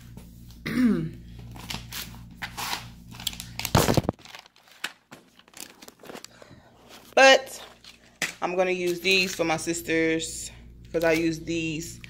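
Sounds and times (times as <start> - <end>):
low background hum: 0.0 - 12.0
packaging crinkling: 1.6 - 8.3.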